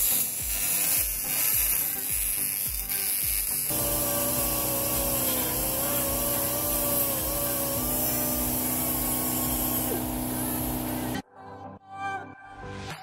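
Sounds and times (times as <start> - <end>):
die grinder whining on metal: 3.7 - 11.2.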